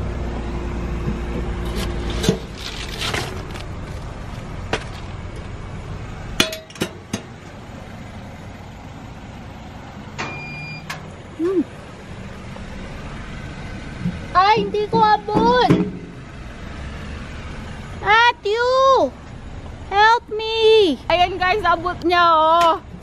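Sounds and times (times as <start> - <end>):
short electronic beep: 10.2 - 10.9.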